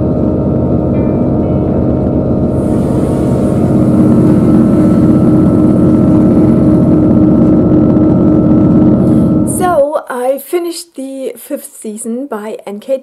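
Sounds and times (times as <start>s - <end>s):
ambient music drone: 0.0s - 9.8s
train hiss and rumble: 0.1s - 9.8s.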